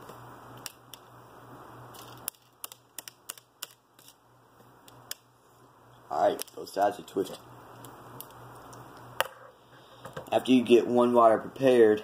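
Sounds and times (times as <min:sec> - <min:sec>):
faint steady hum and hiss: 0:00.0 - 0:12.0
wire strands clicking and tapping: 0:01.9 - 0:05.3, 0:06.2 - 0:09.3.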